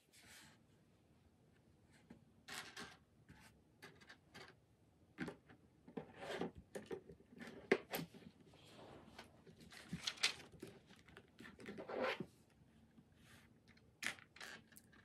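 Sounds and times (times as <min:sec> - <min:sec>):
plastic bricks rustling and clicking: 0:13.6 - 0:15.0.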